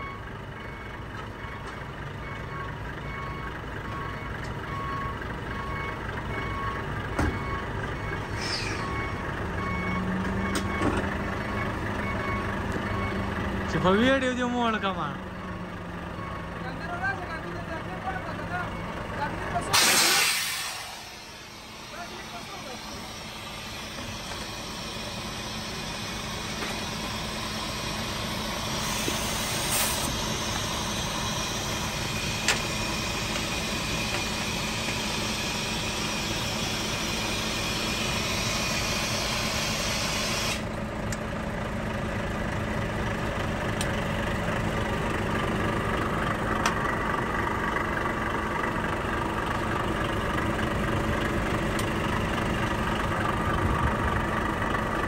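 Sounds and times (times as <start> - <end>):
diesel engine idling: 0.0 - 55.0
hiss: 19.8 - 21.6, 28.6 - 30.2, 34.4 - 40.6.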